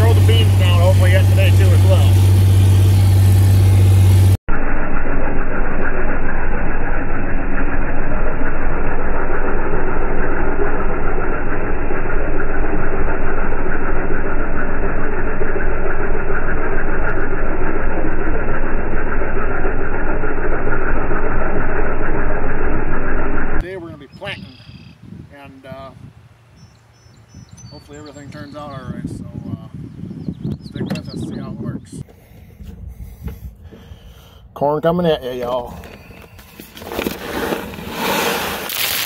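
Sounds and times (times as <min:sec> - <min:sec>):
vehicle engine under load: 0:00.0 - 0:23.6.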